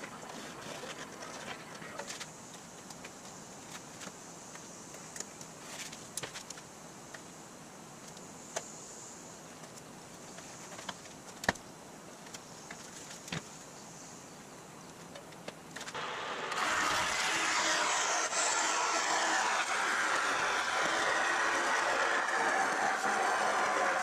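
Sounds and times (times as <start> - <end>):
bandsaw cutting aluminum: 16.0 - 24.0.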